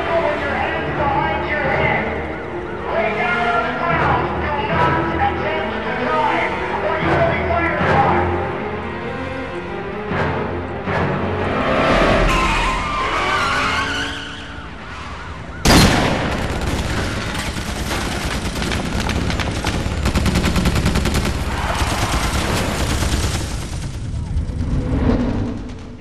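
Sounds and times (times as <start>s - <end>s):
bending screeching sound: 12.0s - 15.7s
loud blast: 15.6s - 26.0s
rapid machine-gun fire: 15.7s - 26.0s.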